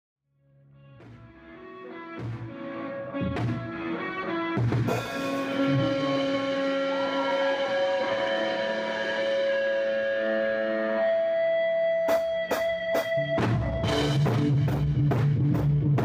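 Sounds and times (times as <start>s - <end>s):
electric guitar chords: 0.7s - 16.0s
drum kit crashes: 2.2s - 2.6s, 3.2s - 4.0s, 4.6s - 10.2s, 12.1s - 16.0s.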